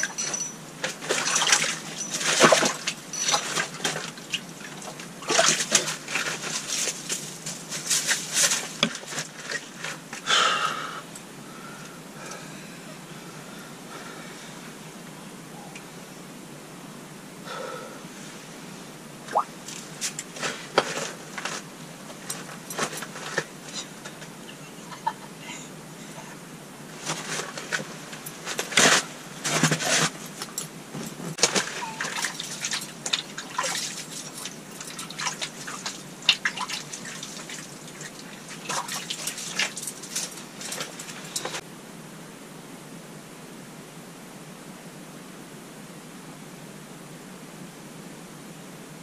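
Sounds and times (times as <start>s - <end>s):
handling clicks and rustles: 0.0s - 10.2s, 19.6s - 24.4s, 26.9s - 41.6s
water dripping and splashing: 0.8s - 9.6s, 19.3s - 20.3s, 31.4s - 41.6s.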